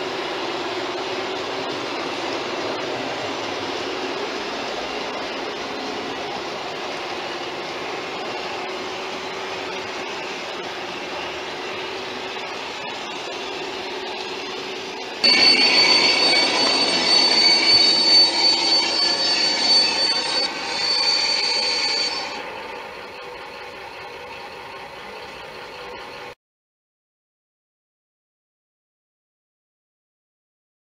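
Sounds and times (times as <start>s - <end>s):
model train rolling on track: 0.0s - 26.4s
high-pitched wheel squeal: 7.8s - 26.3s.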